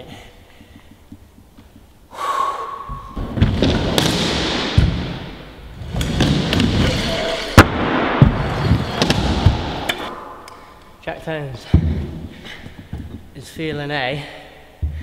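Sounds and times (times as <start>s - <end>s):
scooter wheels rolling on plywood: 5.7s - 7.5s, 8.2s - 10.1s.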